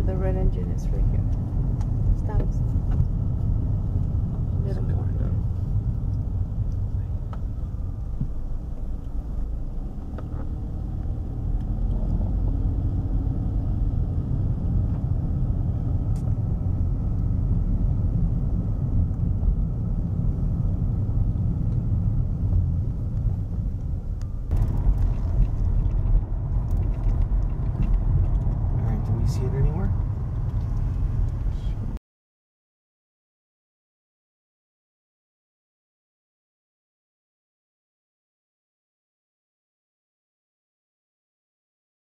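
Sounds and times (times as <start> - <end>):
car engine and road rumble: 0.0 - 32.0.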